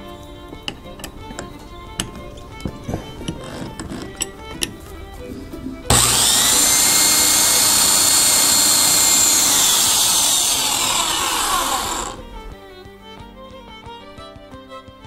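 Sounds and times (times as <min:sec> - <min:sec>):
electric drill whining: 0:05.9 - 0:12.6.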